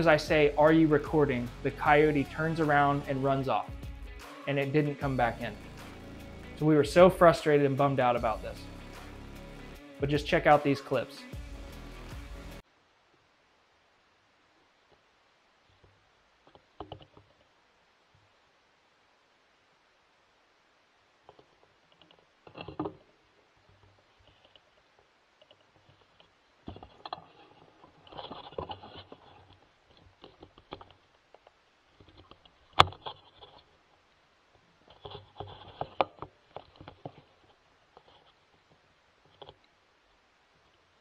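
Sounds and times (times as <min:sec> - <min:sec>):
handling noise rustling and clicks: 0:21.2 - 0:40.9.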